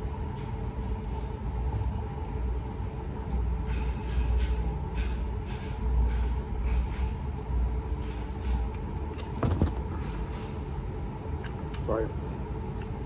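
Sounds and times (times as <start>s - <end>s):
faint steady hum: 0.0s - 4.0s
close-up chewing: 11.4s - 13.0s.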